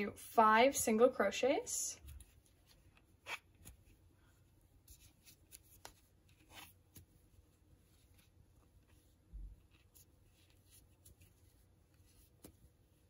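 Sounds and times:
crochet hook scratching yarn: 0:02.0 - 0:04.0, 0:04.8 - 0:13.0.

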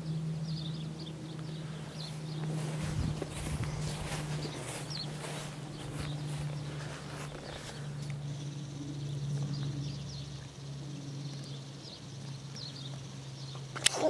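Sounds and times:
birds chirping: 0:00.0 - 0:14.0
steady low hum: 0:00.0 - 0:14.0.

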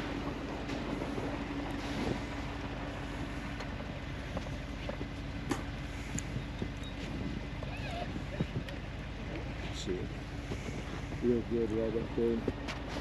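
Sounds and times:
truck engine idling: 0:00.0 - 0:13.0
wind noise on microphone: 0:04.3 - 0:11.5.

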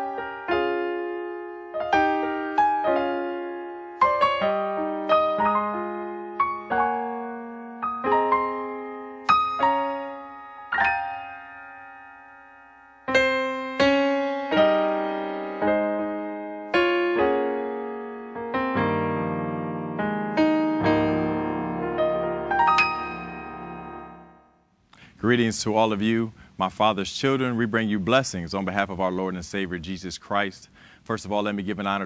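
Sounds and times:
deep bass piano notes: 0:00.0 - 0:24.6
digital piano playing slow chords: 0:00.0 - 0:24.8.

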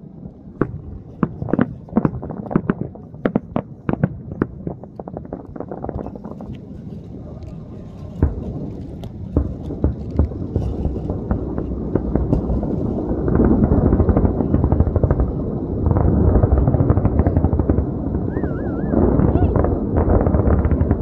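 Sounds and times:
heavy rumble of building collapse: 0:00.0 - 0:21.0
sharp explosive bangs: 0:08.0 - 0:21.0.

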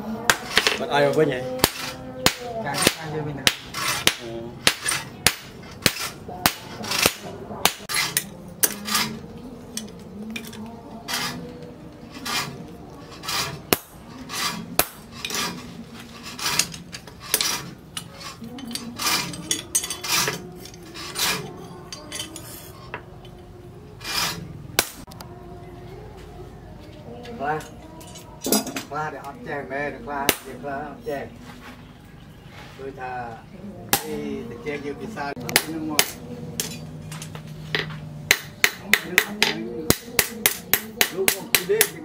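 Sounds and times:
hammer striking steel on anvil: 0:14.8 - 0:15.5, 0:35.5 - 0:37.2, 0:37.8 - 0:42.0.

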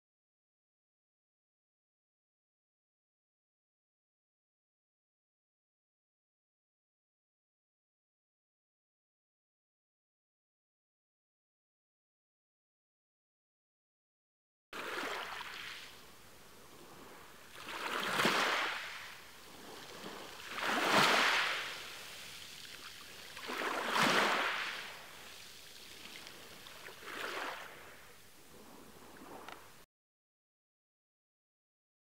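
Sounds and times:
waves washing over stony shore: 0:14.8 - 0:16.0, 0:16.6 - 0:29.5.

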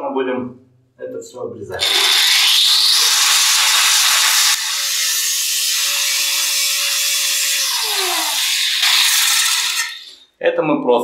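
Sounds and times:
angle grinder cutting metal: 0:01.7 - 0:10.2.

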